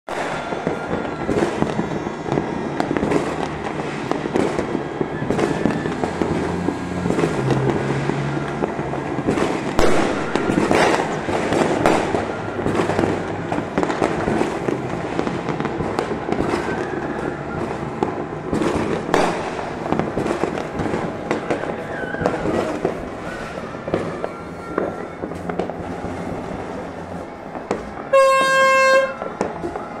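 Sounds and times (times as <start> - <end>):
fireworks crackling and banging: 0.1 - 30.0
loud horn: 28.1 - 29.8.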